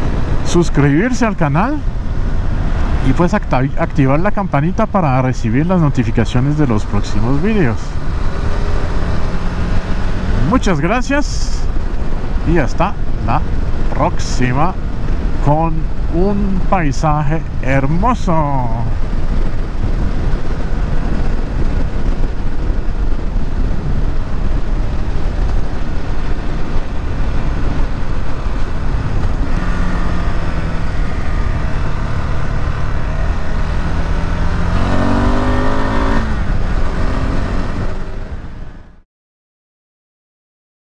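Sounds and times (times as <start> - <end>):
motorcycle engine accelerating: 6.9 - 14.0, 18.2 - 39.0.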